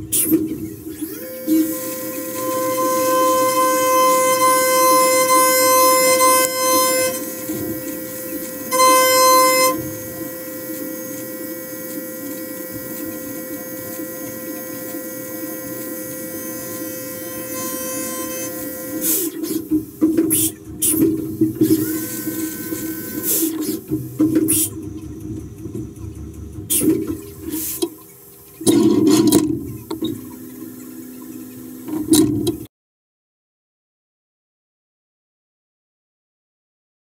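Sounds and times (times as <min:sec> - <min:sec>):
milling cutter high-pitched singing: 0:01.0 - 0:19.6
coolant spray hissing: 0:18.0 - 0:24.9.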